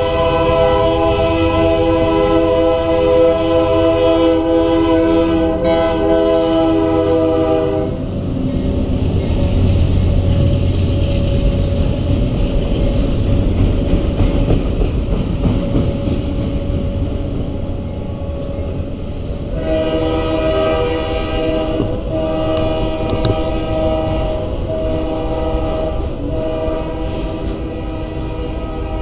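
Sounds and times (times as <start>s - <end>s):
diesel locomotive horn: 0.0s - 8.7s, 16.7s - 29.0s
freight train wheels rumbling: 0.0s - 29.0s.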